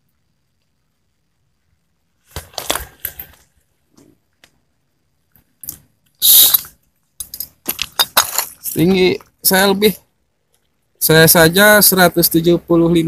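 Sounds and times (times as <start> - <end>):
stone fragments clinking: 7.2 - 9.0.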